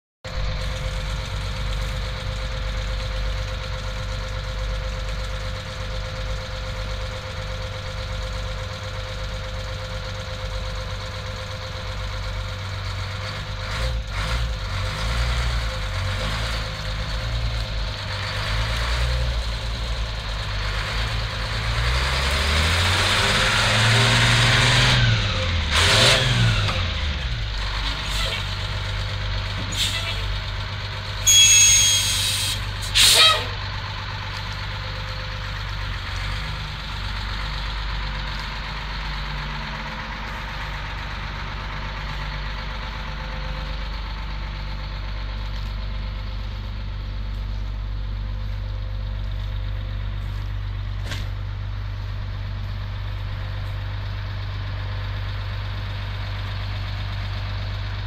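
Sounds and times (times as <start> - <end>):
diesel truck engine idling and revving: 0.2 - 58.0
loud air hiss: 31.9 - 33.4.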